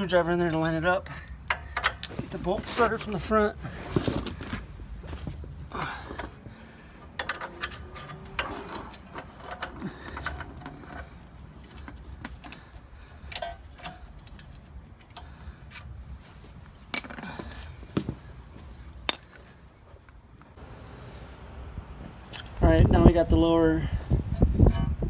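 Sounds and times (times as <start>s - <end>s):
metallic clicks of tools on bolt: 1.4s - 2.1s, 7.0s - 11.1s, 13.3s - 15.9s.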